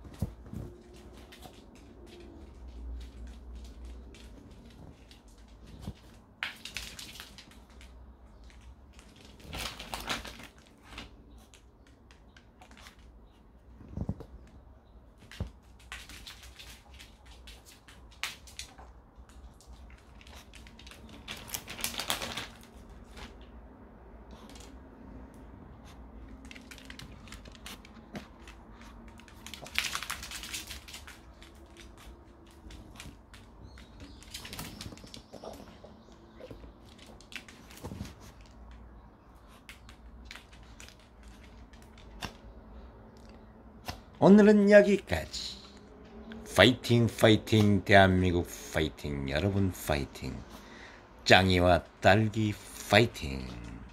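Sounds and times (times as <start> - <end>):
dogs crunching dry food: 19.5 - 22.8, 26.2 - 35.7.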